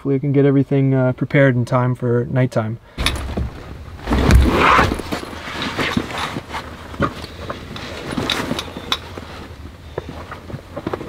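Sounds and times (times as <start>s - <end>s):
backpack straps clicking and knocking: 3.0s - 11.0s.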